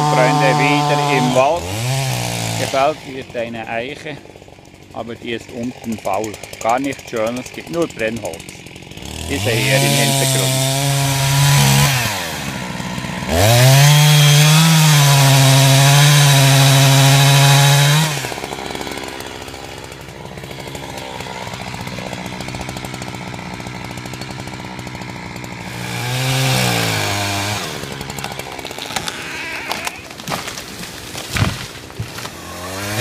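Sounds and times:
chainsaw cutting and idling: 0.0 - 33.0.

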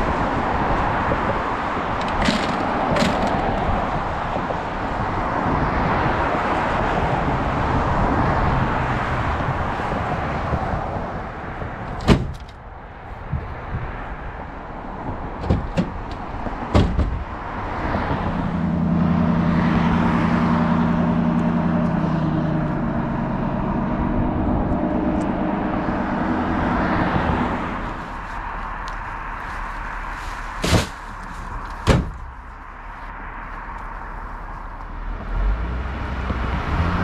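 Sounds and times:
sharp knocks: 16.7 - 17.2
vehicle passing by: 17.3 - 31.4, 32.8 - 37.0.

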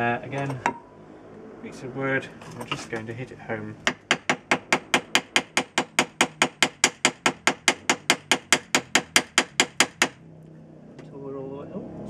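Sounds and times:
hammer striking wood: 3.8 - 10.2.

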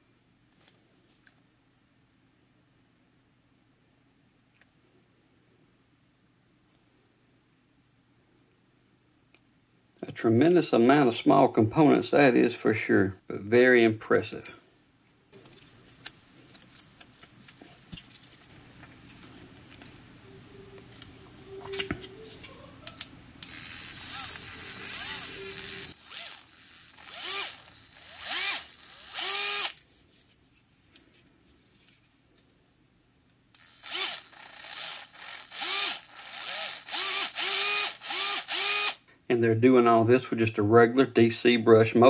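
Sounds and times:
electric screwdriver motor spinning: 23.4 - 29.8, 33.6 - 39.0.

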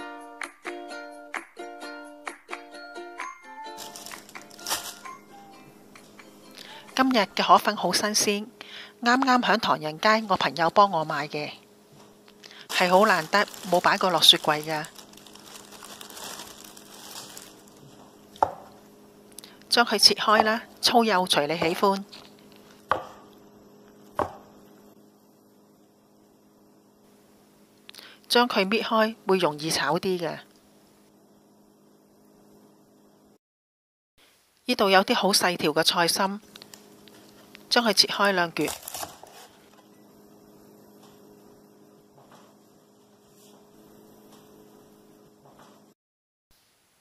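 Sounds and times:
faint steady hum: 3.0 - 33.4, 34.2 - 47.0
cleaver knocking on cutting board: 18.4 - 18.7, 24.2 - 24.4.

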